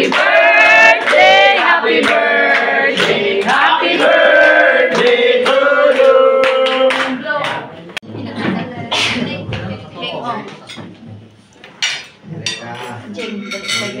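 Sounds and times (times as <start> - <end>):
group of people singing: 0.0 - 7.8.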